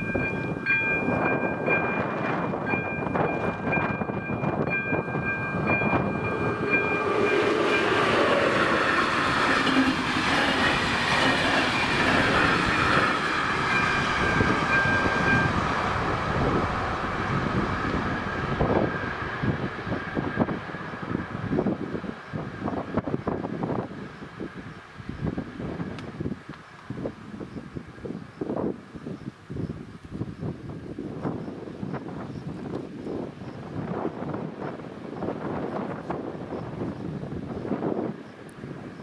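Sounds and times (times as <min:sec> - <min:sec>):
electronic crossing warning bell: 0:00.0 - 0:08.9, 0:11.6 - 0:15.7
train wheels rumbling on rails: 0:00.0 - 0:28.8.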